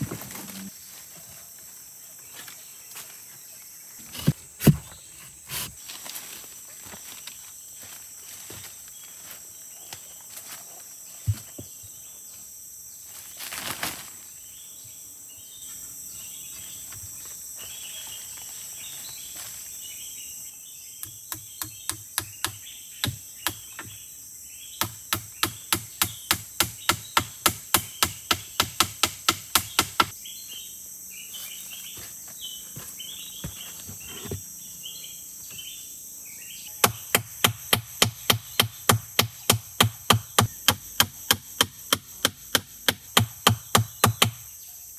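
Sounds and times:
high insect drone: 0:00.0 - 0:44.9
chopping blows on wood: 0:24.8 - 0:30.1, 0:36.8 - 0:44.4.

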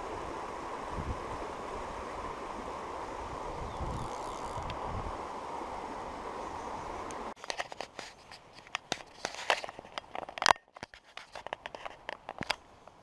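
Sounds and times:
plants brushing and rustling: 0:07.2 - 0:12.5.

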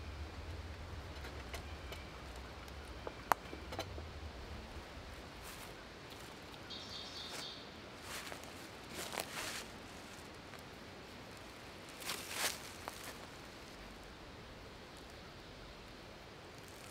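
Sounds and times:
low rumble: 0:00.0 - 0:06.9.

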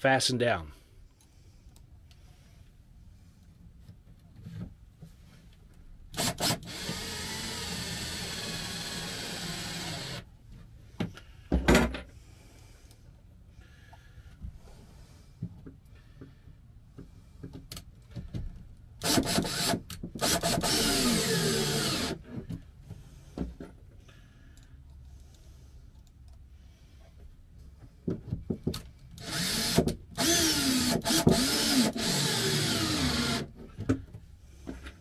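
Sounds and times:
cordless drill driving screws: 0:06.1 - 0:10.3, 0:19.0 - 0:22.2, 0:29.2 - 0:33.5.

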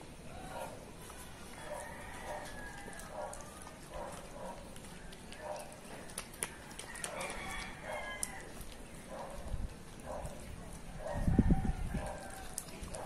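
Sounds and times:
dog chewing wet food: 0:00.0 - 0:13.0
teeth clicking on metal bowl: 0:02.7 - 0:10.4.

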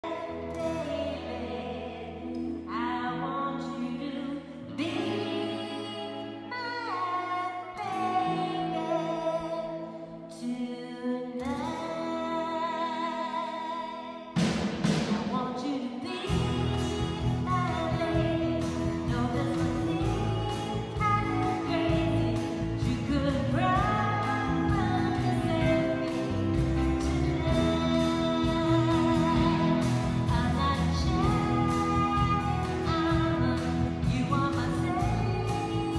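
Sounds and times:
keyboard chords: 0:00.0 - 0:14.6, 0:16.1 - 0:35.9
guitar chords: 0:00.0 - 0:15.1, 0:16.1 - 0:35.9
person singing: 0:00.0 - 0:35.9
live rock band playing: 0:16.2 - 0:35.9.

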